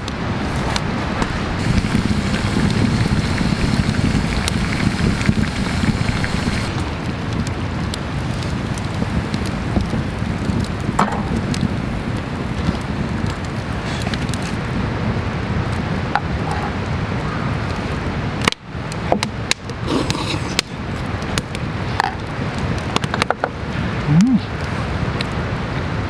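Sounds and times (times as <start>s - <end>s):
steady low rumble: 0.0s - 15.2s
campfire crackling and popping: 0.0s - 26.0s.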